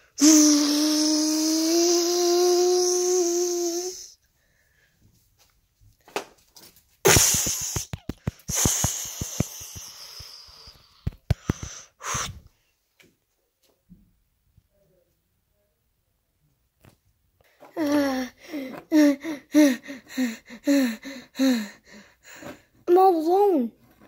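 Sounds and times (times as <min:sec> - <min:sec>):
child making breathy vocal tone: 0:00.2 - 0:04.2, 0:17.8 - 0:21.8.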